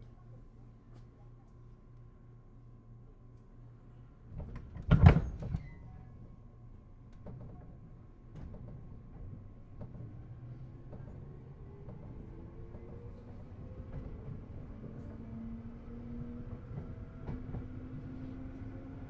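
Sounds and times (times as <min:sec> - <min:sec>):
train doors closing with thump: 0:04.3 - 0:05.8, 0:07.2 - 0:10.2.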